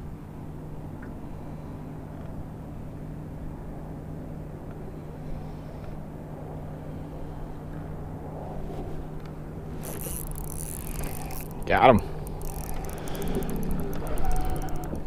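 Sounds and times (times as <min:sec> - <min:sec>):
boat motor humming: 0:09.4 - 0:15.0.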